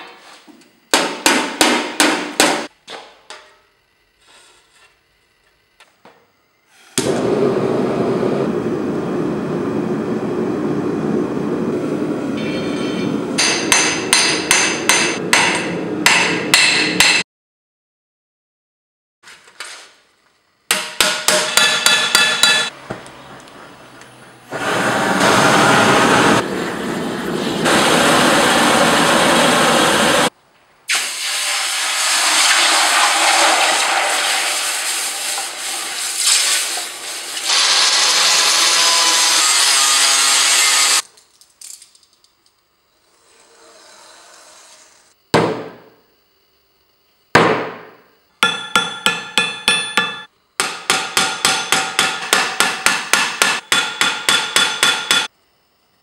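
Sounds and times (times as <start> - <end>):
hammer ringing on steel: 21.0 - 22.7, 48.4 - 55.3
hot steel hissing in water: 30.9 - 38.8.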